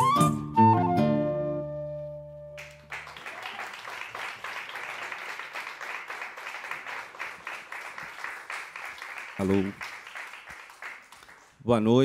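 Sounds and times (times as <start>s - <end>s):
guitars and flute chord ringing: 0.0s - 2.6s
audience applause: 2.6s - 11.6s.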